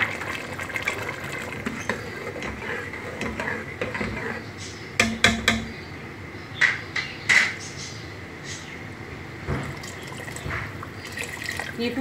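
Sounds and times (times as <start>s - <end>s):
water pouring into a pot: 0.0s - 2.1s, 9.6s - 12.0s
sharp knocks against pot: 5.0s - 5.7s.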